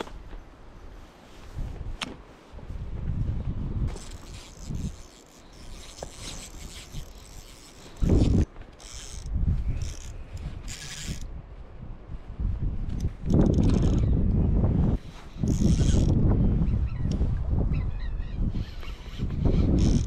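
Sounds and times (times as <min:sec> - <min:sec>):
wind rumble on microphone: 0:00.0 - 0:07.3, 0:07.9 - 0:20.0
fishing reel whirring and ratcheting: 0:03.9 - 0:11.3, 0:13.3 - 0:14.1, 0:15.3 - 0:16.2, 0:18.6 - 0:20.0.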